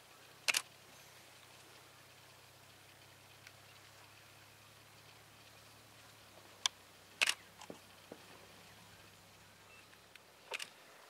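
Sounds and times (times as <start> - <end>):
camera shutter clicks: 0.5 - 0.7, 7.2 - 7.4, 10.5 - 10.8.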